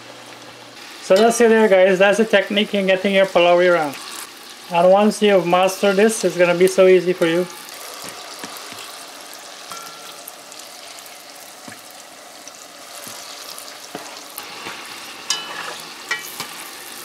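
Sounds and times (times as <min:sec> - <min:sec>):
batter deep-frying in oil: 0:00.0 - 0:17.0
ringing metal scrape: 0:09.7 - 0:10.3, 0:15.3 - 0:16.3.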